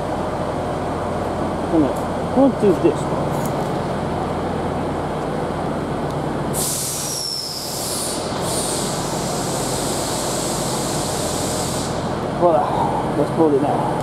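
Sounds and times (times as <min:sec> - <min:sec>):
diesel engine idling: 0:00.0 - 0:14.0
pneumatic air hiss: 0:06.5 - 0:12.2.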